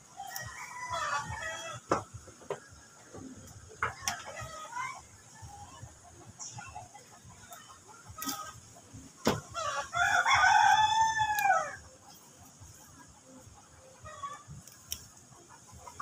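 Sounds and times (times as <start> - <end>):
rooster crowing: 0.2 - 1.8, 9.6 - 11.8.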